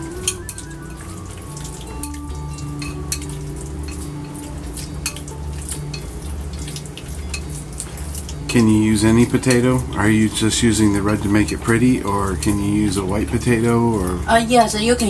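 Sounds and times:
steady low hum: 0.0s - 15.0s
chopsticks clicking against bowl: 2.0s - 9.8s.

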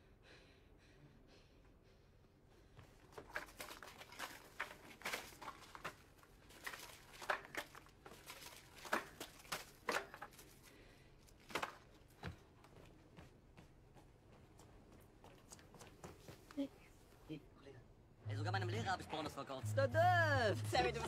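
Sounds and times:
cardboard tubes rustling: 3.0s - 12.2s.

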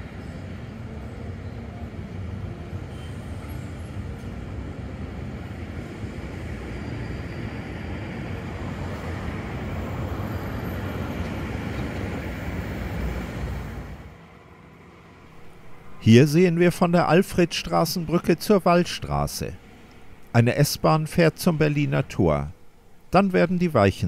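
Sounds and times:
train wheels rumbling on rail: 0.0s - 14.1s.

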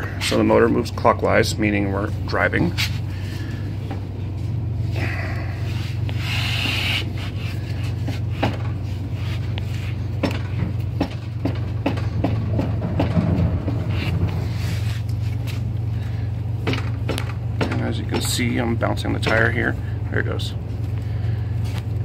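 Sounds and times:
steady low hum: 0.0s - 22.0s
rustling scrape: 5.6s - 10.1s, 13.6s - 15.7s.

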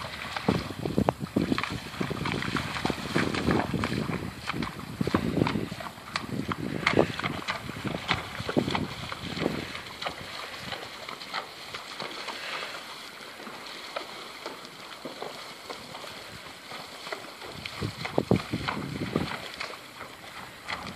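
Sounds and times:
hooves splashing in water: 0.0s - 20.9s
running water rushing: 0.0s - 20.9s.

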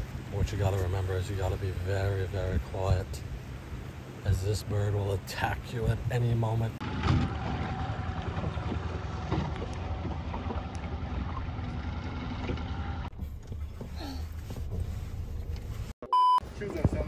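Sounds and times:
outboard motor running: 6.8s - 13.1s.

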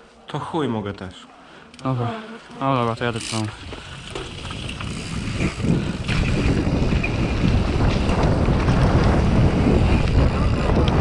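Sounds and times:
wind rushing over microphone: 3.5s - 11.0s.

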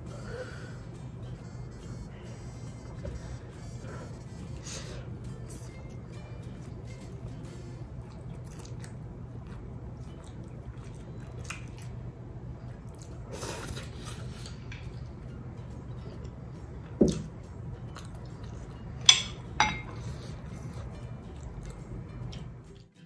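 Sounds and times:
person chewing food: 5.3s - 22.9s.

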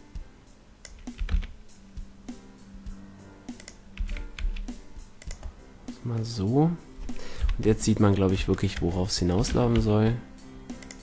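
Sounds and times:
soft background music: 0.0s - 11.0s
keyboard keystrokes and mouse clicks: 0.8s - 1.6s, 3.5s - 5.6s, 7.4s - 11.0s.

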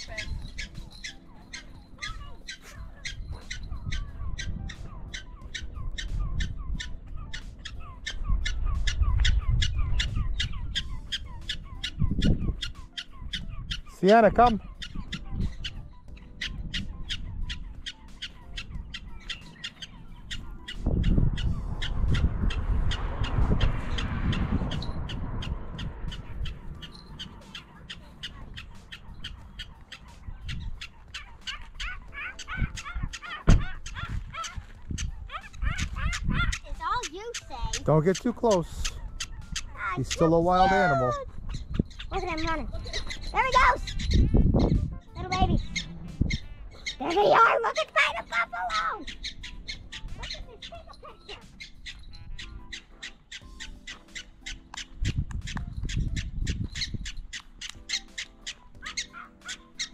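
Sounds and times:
prairie dog chirping alarm barks: 0.0s - 59.9s
low rumble: 20.9s - 28.7s, 42.6s - 46.8s.

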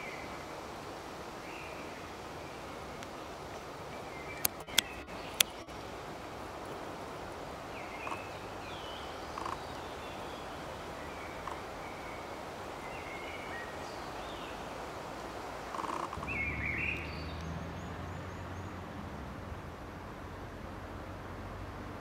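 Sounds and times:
steady hiss: 0.0s - 22.0s
sharp clicks: 4.4s - 5.6s
faint bird chirps: 7.7s - 14.7s, 15.6s - 18.8s.

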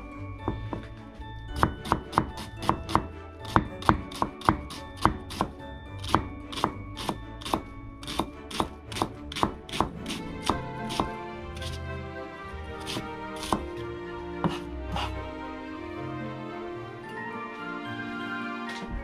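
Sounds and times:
knife chopping on cutting board: 1.6s - 11.8s, 12.8s - 13.8s, 14.4s - 15.1s.

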